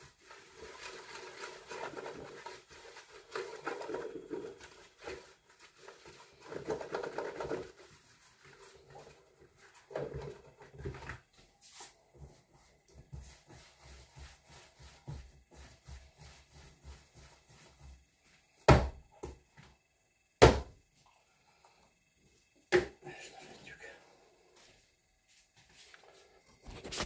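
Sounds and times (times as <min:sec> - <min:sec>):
dough squelching and slapping: 0:00.0 - 0:18.1.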